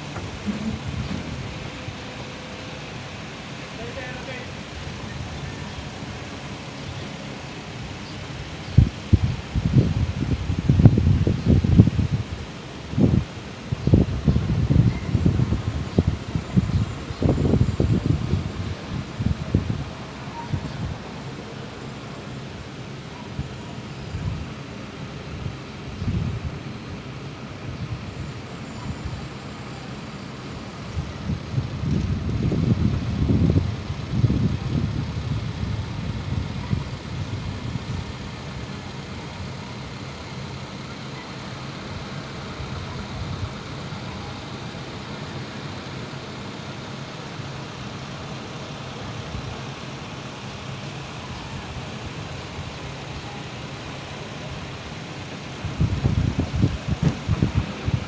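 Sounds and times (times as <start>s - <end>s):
low rumbles: 0.0s - 29.2s, 30.4s - 40.6s, 54.0s - 58.0s
truck engine and hydraulics: 0.0s - 58.0s.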